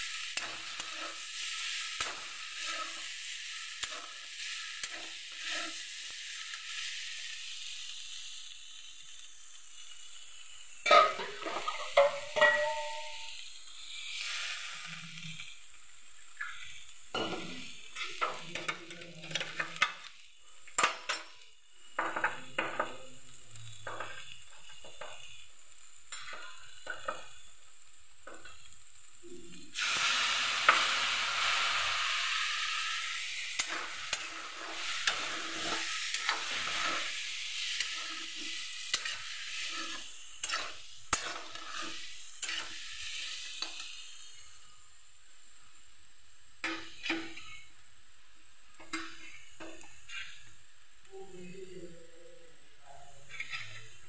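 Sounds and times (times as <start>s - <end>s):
vegetables sizzling in oil: 0.0s - 54.0s
metal spatula scraping pan: 10.8s - 13.3s, 33.6s - 43.8s, 48.8s - 50.5s, 53.3s - 54.0s.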